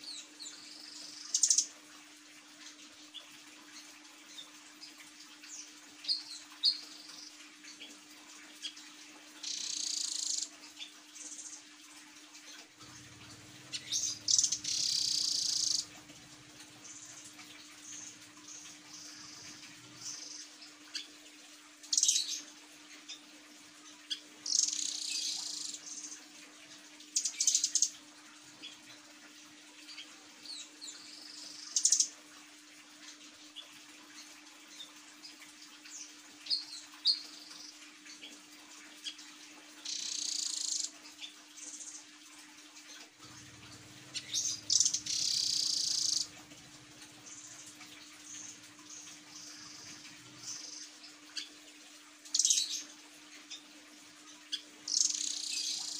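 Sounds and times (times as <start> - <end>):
songbird high-pitched calls: 0.0 - 1.7, 9.4 - 11.4, 13.2 - 21.1, 24.1 - 26.2, 39.8 - 41.4, 44.0 - 51.6, 52.3 - 52.9, 54.5 - 55.9
faint steady hum: 0.0 - 55.9.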